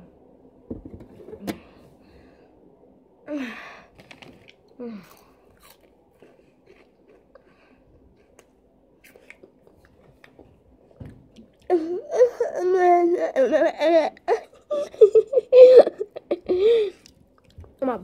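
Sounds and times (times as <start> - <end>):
boy wailing cries: 11.7 - 16.9.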